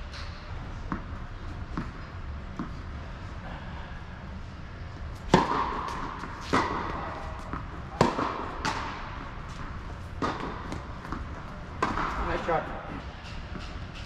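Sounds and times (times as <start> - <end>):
tennis ball hitting racket: 5.2 - 12.6.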